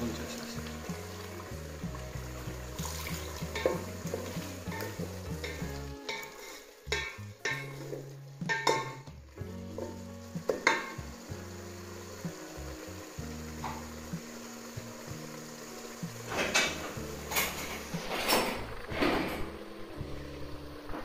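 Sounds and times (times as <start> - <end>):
sauce sizzling: 0.0 - 21.0
wooden spoon scraping pot: 1.8 - 11.1
spoon knocking against pot: 6.9 - 9.1, 10.5 - 11.0.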